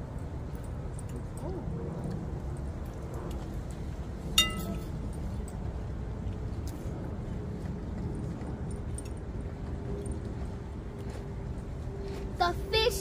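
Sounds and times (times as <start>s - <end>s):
hard object clinking: 4.4s - 4.9s.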